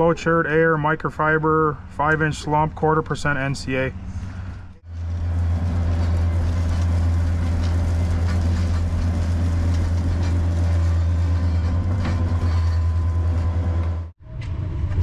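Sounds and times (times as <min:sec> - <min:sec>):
gravel spilling and rattling: 0:04.8 - 0:14.1.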